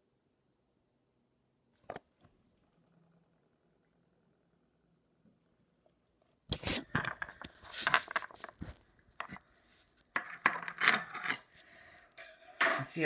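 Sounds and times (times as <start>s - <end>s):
small hard objects clinking: 6.8s - 9.4s.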